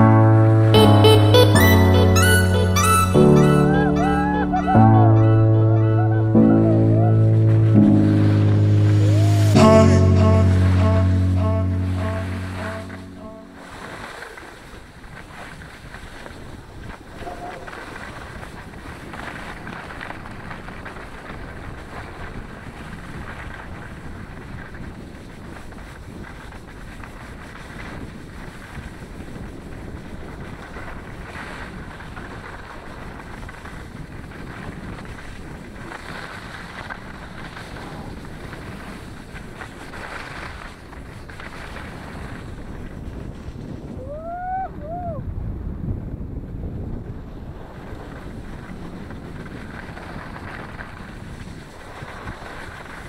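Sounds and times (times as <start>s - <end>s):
wind on microphone: 3.7s - 53.0s
skis sliding over snow: 6.3s - 44.5s, 47.1s - 53.0s.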